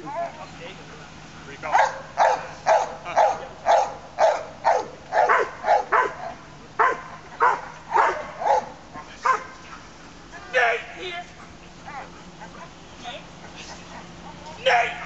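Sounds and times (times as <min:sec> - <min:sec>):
dog barking sharply: 0:01.7 - 0:09.5.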